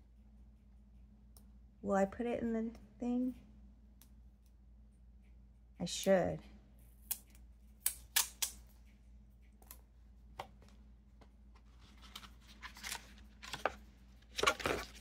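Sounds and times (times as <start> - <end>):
packaging rustling and crinkling: 11.6 - 15.0.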